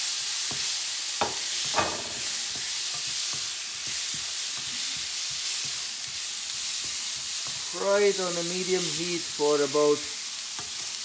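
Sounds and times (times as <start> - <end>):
vegetables sizzling in oil: 0.0 - 11.0.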